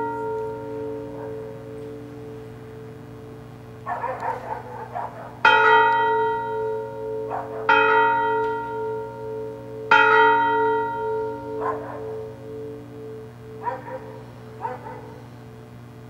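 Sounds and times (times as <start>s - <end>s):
bell ringing: 0.0s - 3.4s, 5.4s - 14.7s.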